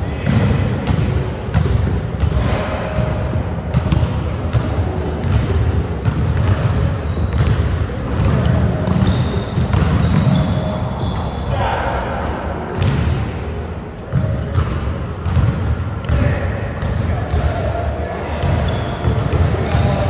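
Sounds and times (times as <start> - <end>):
basketballs bouncing on wood floor: 0.1 - 10.7, 14.1 - 20.0
sneaker squeaks: 6.4 - 11.6, 14.1 - 20.0.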